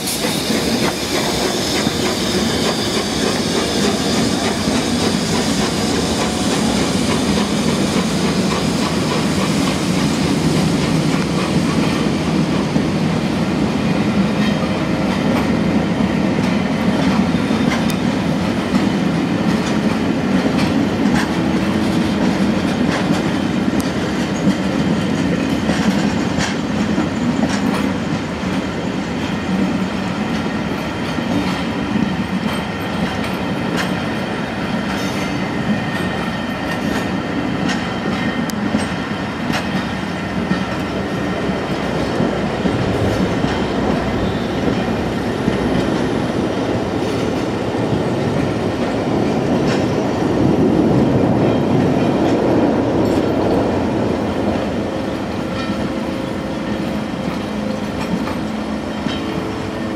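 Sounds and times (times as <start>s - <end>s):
train wheels rumbling on track: 0.0s - 59.9s
wheels clicking over rail joints: 16.4s - 28.7s.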